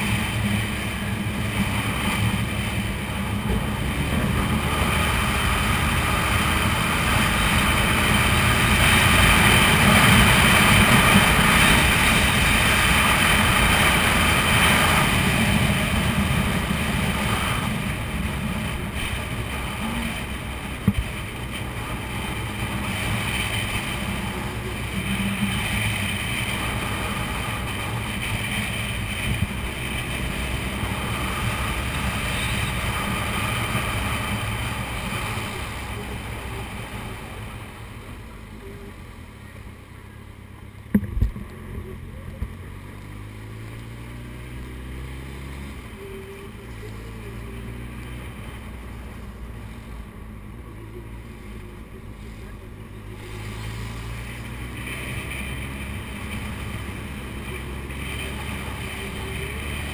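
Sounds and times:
wind rushing over microphone: 0.0 - 38.3
motorcycle engine running: 0.0 - 59.9.

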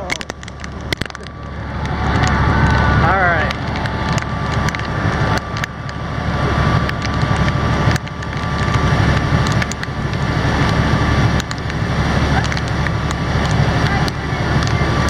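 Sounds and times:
boat engine running: 0.0 - 15.0
heavy rain hiss: 0.0 - 15.0.

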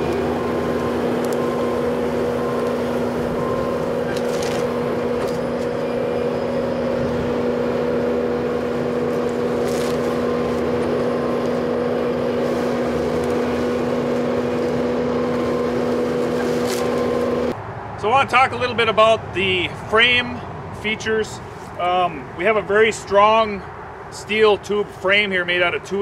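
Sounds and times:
skid steer engine running: 0.0 - 17.6.

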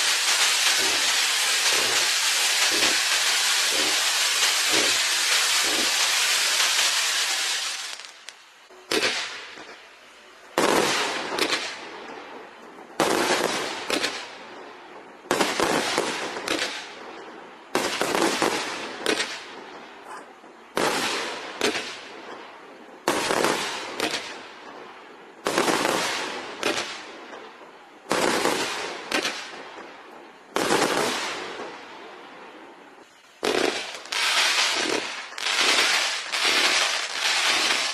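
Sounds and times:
firework shells banging: 0.0 - 7.3
firework crackling: 0.0 - 37.9.

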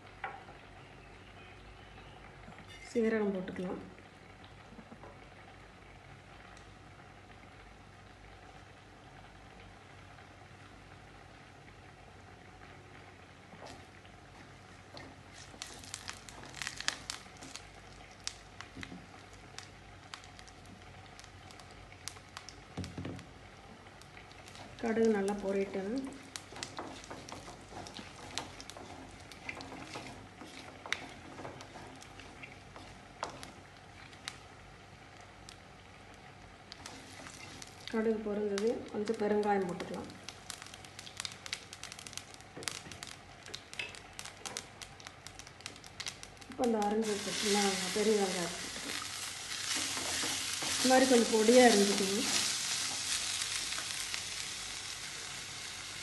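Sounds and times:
seeds popping in hot oil: 0.0 - 5.4, 12.9 - 56.0.

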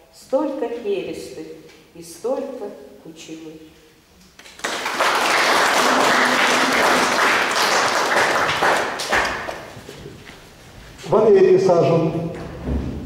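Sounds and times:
audience applauding: 4.4 - 9.8.

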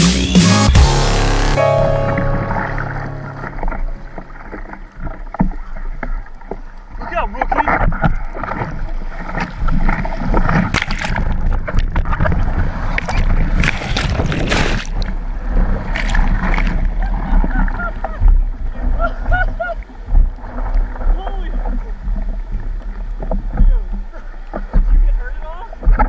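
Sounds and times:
surf rushing and splashing: 6.9 - 26.0.

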